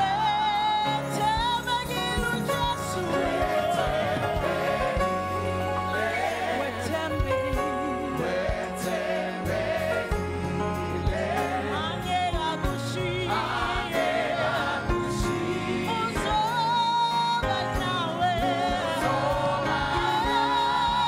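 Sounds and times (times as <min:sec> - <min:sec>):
bass guitar: 0:00.0 - 0:21.0
keyboard: 0:00.0 - 0:21.0
people singing: 0:00.0 - 0:21.0
drum beats: 0:01.2 - 0:21.0.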